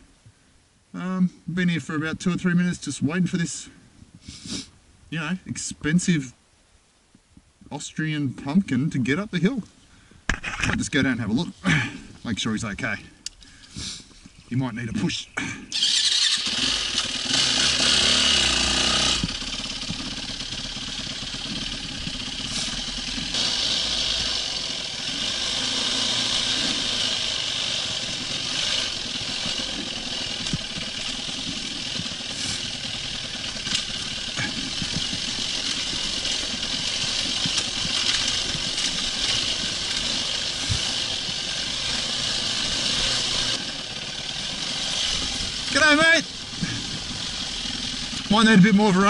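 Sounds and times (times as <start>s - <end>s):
dirt bike engine running: 15.7s - 49.0s.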